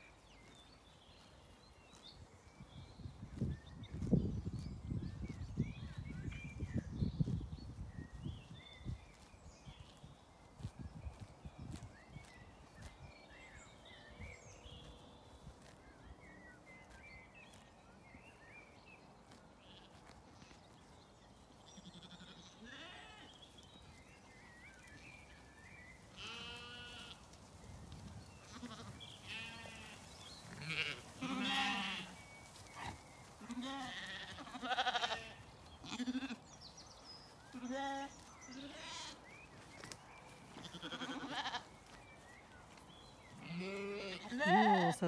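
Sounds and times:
small birds chirping faintly: 0.0s - 45.0s
sheep and lambs bleating: 19.6s - 20.2s, 21.7s - 23.4s, 26.0s - 27.4s, 28.4s - 36.6s, 37.5s - 39.3s, 40.5s - 42.0s, 43.3s - 45.0s.

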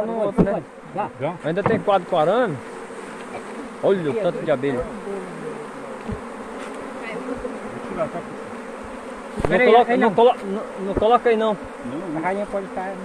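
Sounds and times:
bees buzzing: 0.0s - 13.0s
person speaking: 1.1s - 2.6s, 3.2s - 5.8s
dull knocks: 1.5s - 2.2s, 6.0s - 6.3s.

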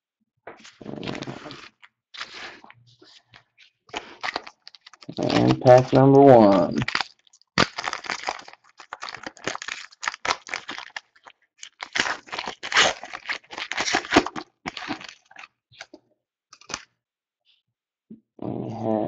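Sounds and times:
wrapper tearing and crinkling: 0.6s - 2.6s, 4.0s - 16.0s, 16.6s - 16.9s.

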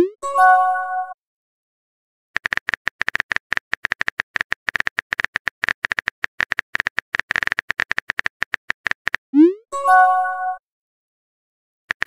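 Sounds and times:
phone keyboard typing clicks: 2.4s - 9.2s.

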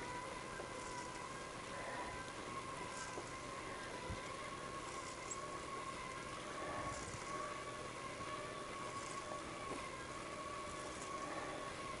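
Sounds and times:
rolling and wind noise: 0.0s - 12.0s
thin steady whine: 0.0s - 12.0s.

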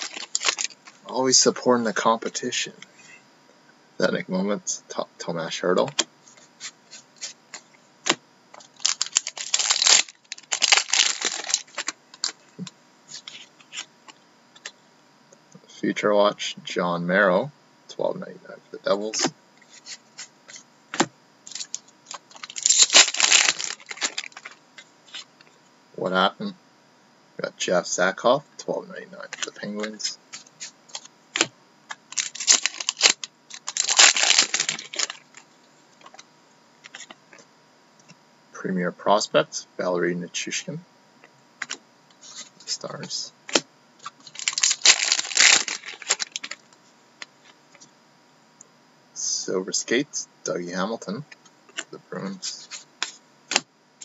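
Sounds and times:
wrappers crinkling and tearing: 0.0s - 1.1s, 8.6s - 12.4s, 21.5s - 25.3s, 32.1s - 35.4s, 44.0s - 46.6s.

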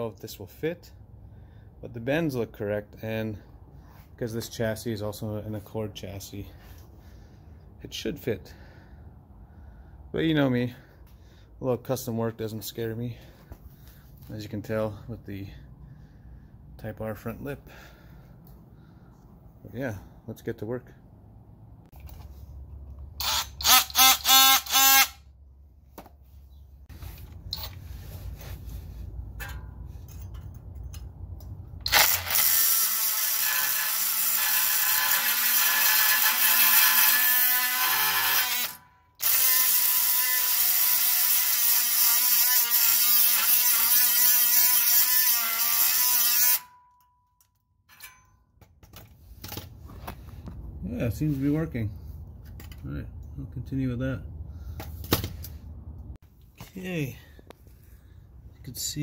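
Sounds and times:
oscillating multi-tool buzzing: 23.2s - 25.3s, 31.9s - 46.8s.

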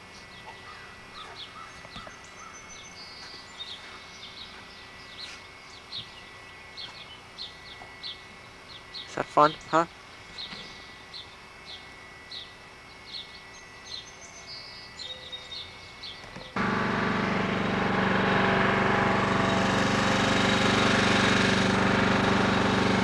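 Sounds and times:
birds chirping: 0.0s - 23.0s
riding lawn mower engine: 16.4s - 23.0s.

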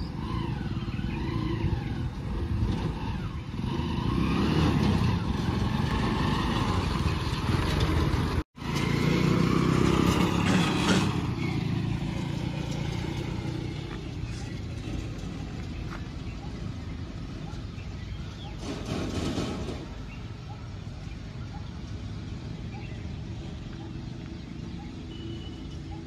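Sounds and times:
motorcycle engine passing: 0.0s - 20.2s.

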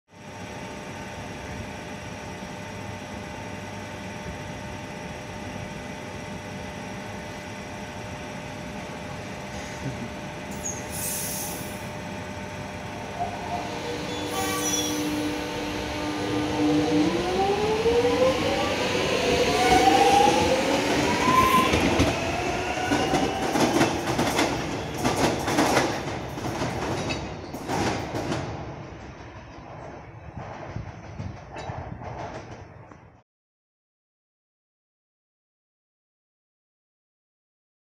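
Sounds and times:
train electrical hum: 0.2s - 33.2s
short hisses: 10.8s - 11.8s
traction motor whine rising: 12.9s - 23.7s.

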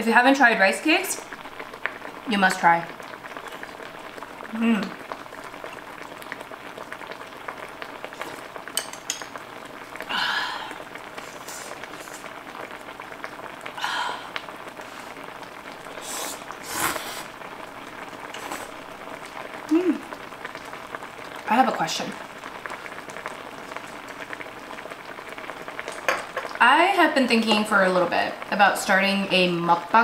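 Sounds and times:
stew simmering bubbling hiss: 0.0s - 30.0s
slurping noodles: 8.2s - 8.5s, 16.0s - 17.4s, 18.3s - 18.8s.

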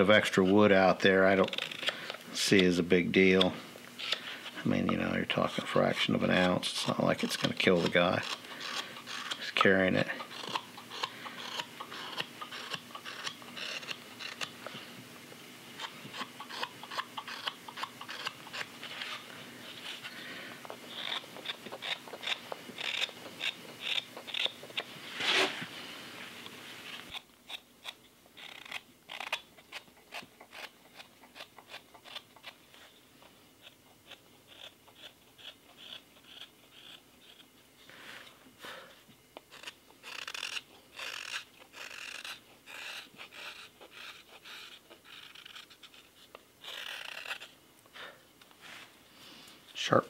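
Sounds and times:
knife shaving green wood: 0.0s - 14.9s, 15.8s - 48.9s.

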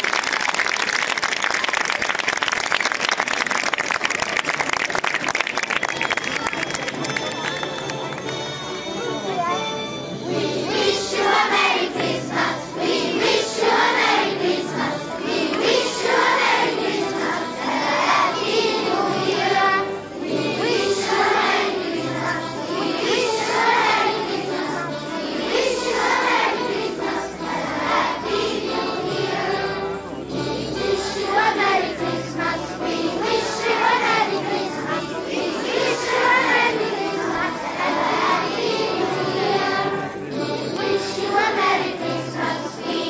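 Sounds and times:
children singing in chorus: 10.2s - 43.0s.

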